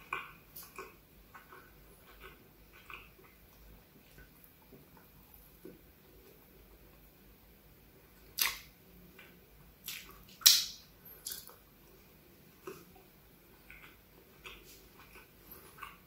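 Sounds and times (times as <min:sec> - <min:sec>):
wet mouth clicks while chewing: 0:00.0 - 0:05.8, 0:08.4 - 0:11.6, 0:12.6 - 0:16.0.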